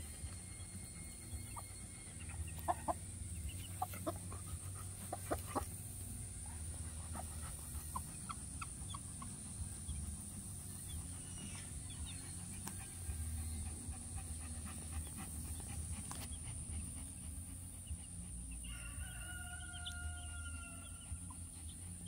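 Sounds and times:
chicks peeping: 0.0 - 22.0
hen clucking: 1.4 - 18.2.

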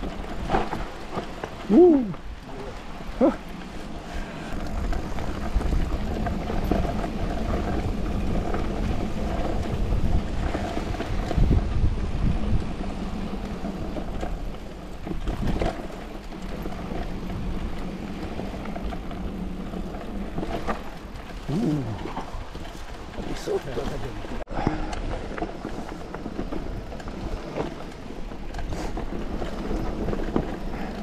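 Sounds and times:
bike tyres rumbling and rattling: 0.0 - 31.0
wind on microphone: 1.6 - 23.3.

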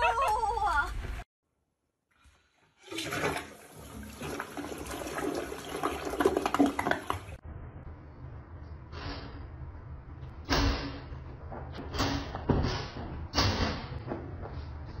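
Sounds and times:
toilet flushing: 2.3 - 7.4.

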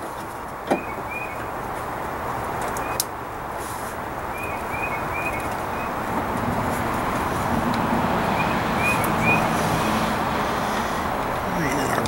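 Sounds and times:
steady background noise: 0.0 - 12.0
small bird chirping: 4.3 - 6.0.

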